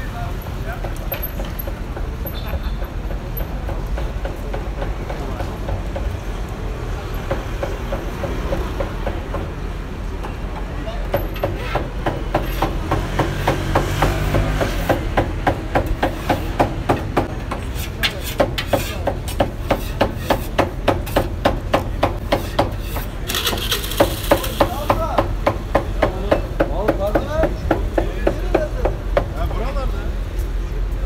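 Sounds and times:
knife chopping on wooden board: 0:11.4 - 0:27.6.

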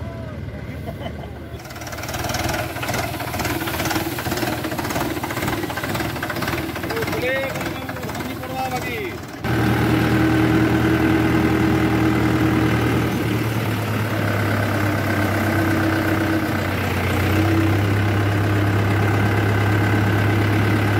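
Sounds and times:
diesel tractor engine running: 0:00.0 - 0:20.9.

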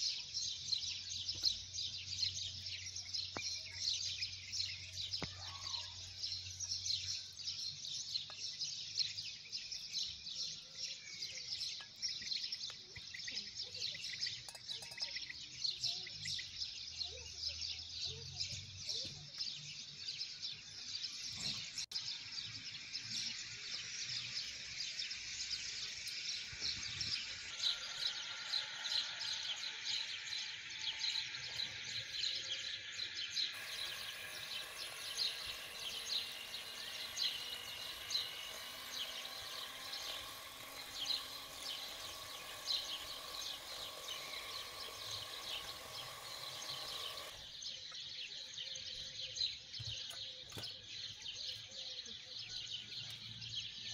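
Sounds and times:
birds chirping: 0:00.0 - 0:53.9
electric hand mixer running: 0:33.5 - 0:47.4.

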